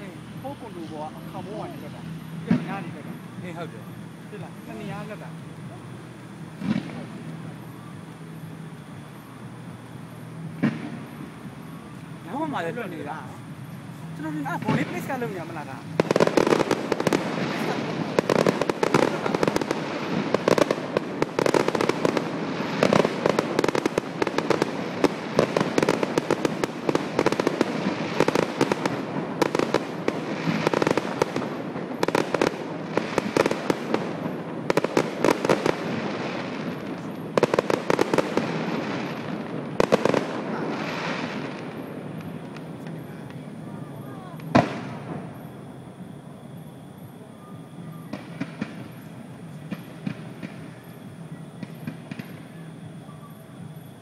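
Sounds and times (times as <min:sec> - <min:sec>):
fireworks bangs and crackles: 0:00.0 - 0:54.0.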